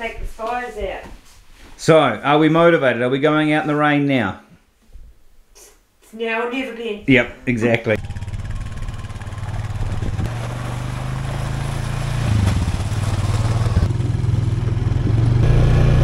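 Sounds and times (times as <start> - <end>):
quad bike engine revving: 8.0 - 16.0.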